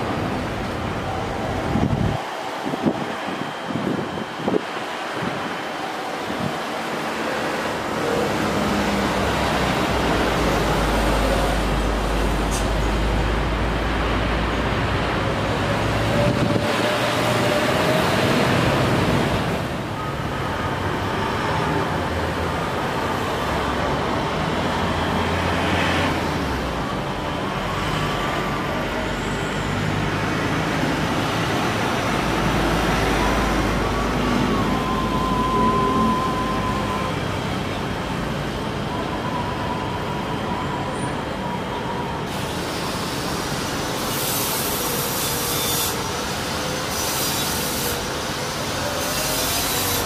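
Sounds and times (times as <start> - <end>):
jet engines roaring on takeoff: 0.0 - 14.1
jet airliner passing with whistling: 1.0 - 4.6, 32.6 - 37.5, 38.9 - 50.0.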